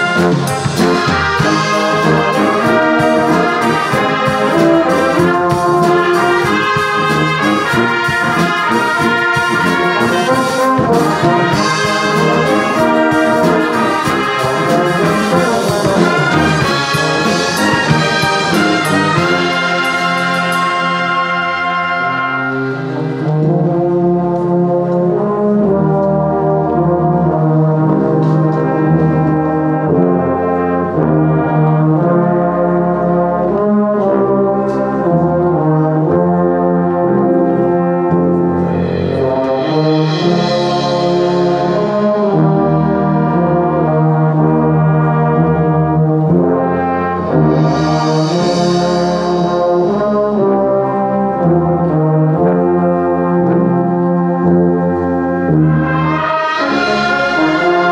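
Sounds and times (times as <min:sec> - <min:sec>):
brass band playing a hymn: 0:00.0 - 0:57.9
high rushing swell: 0:47.4 - 0:49.9.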